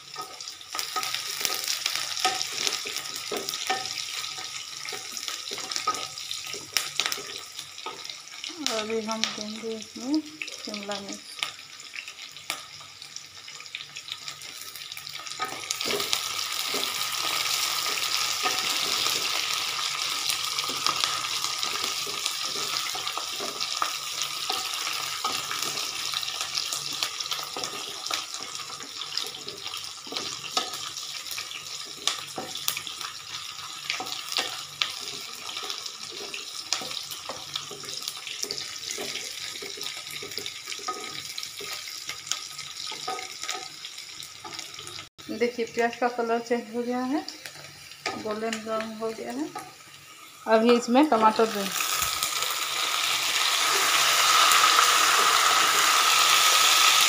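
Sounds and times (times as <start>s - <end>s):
vegetables sizzling in hot oil: 0.0s - 57.0s
spatula scraping a pan: 0.1s - 8.2s, 15.0s - 42.0s.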